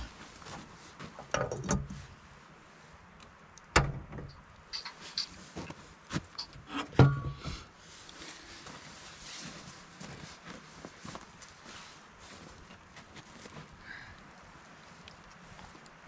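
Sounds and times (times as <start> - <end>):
metal kettle and stove clunking: 1.2 - 2.0, 6.4 - 7.7.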